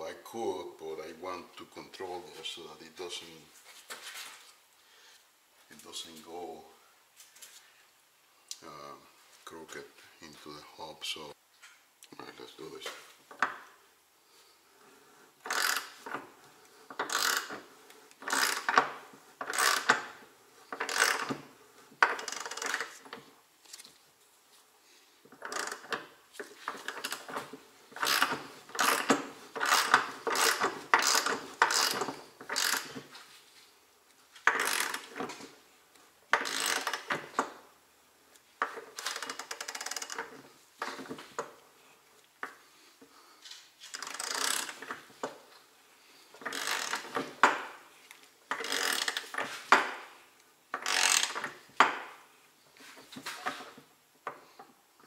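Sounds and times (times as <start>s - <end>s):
ratchet wrench clicking: 15.5s - 16.0s, 17.0s - 17.6s, 18.2s - 18.8s, 19.4s - 20.1s, 20.8s - 21.4s, 28.0s - 32.9s, 34.5s - 35.1s, 36.4s - 37.1s, 43.9s - 44.8s, 46.4s - 47.1s, 48.5s - 49.3s, 50.8s - 51.6s.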